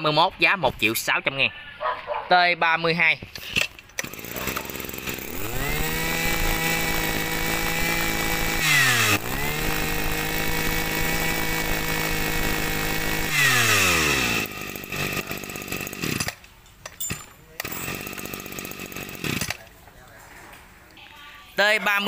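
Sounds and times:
two-stroke brush cutter engine: 3.4 - 16.4, 17.6 - 19.6.

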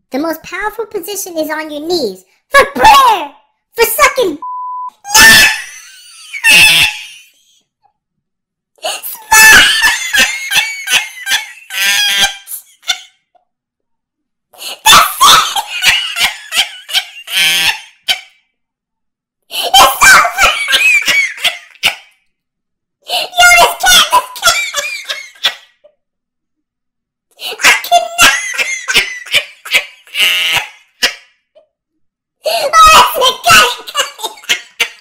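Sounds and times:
man laughing hard: 5.2 - 7.4, 9.2 - 13.1, 14.9 - 18.3, 28.0 - 31.2.

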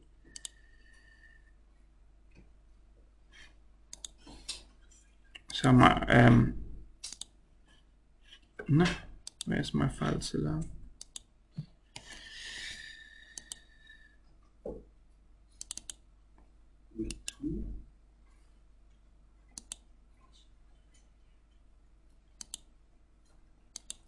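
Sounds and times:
computer mouse clicking: 0.2 - 0.6, 3.9 - 4.7, 7.0 - 7.4, 9.2 - 9.5, 11.0 - 11.3, 13.3 - 13.7, 15.6 - 16.0, 19.5 - 19.9, 22.3 - 22.7, 23.3 - 24.0.

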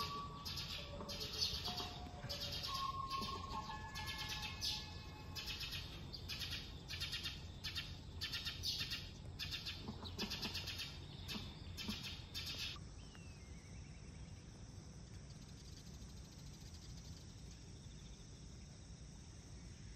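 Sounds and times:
buzzy trilled animal calls: 0.0 - 12.8
faint insect-like hiss: 0.0 - 19.9.

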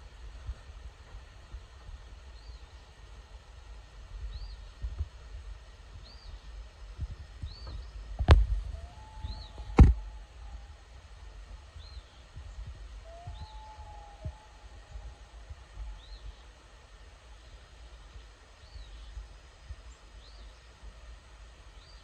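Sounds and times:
loud sharp knocks: 9.7 - 10.0.

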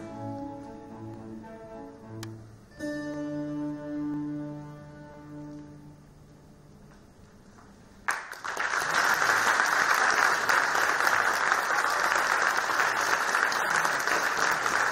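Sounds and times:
audience applauding: 8.1 - 14.9.

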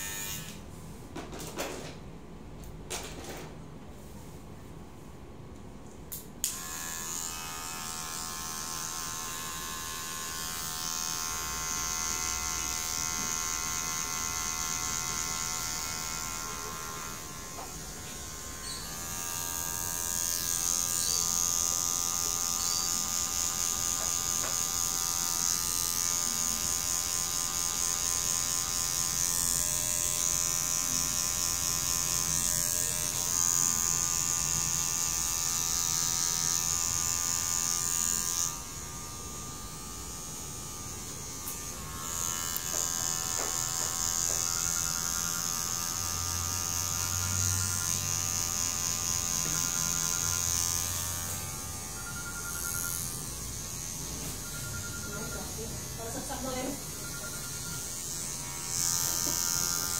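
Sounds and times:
hair clipper buzzing: 0.0 - 0.6, 6.1 - 59.9
hair clipper switch click: 6.1 - 6.7.

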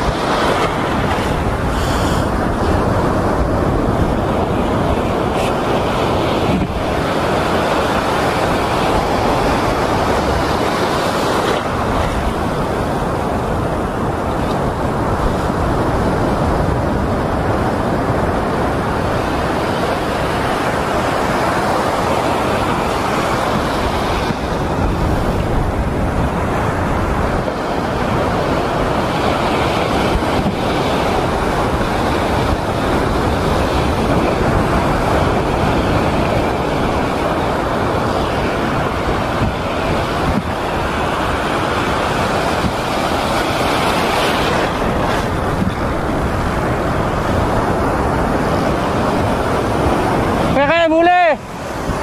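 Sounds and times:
surf breaking over rocks: 0.0 - 52.0
wind buffeting microphone: 0.0 - 52.0.

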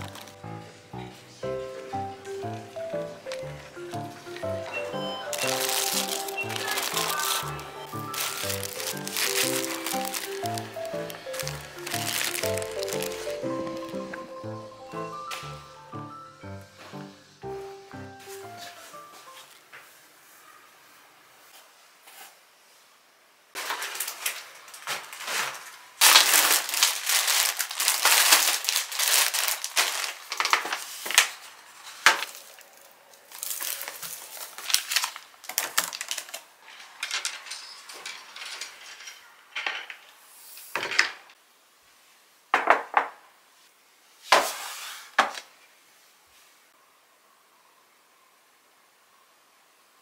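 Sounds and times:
plastic bags crinkling: 0.0 - 0.6, 2.2 - 14.4, 23.6 - 39.1
items knocking on glass table: 42.6 - 43.2.

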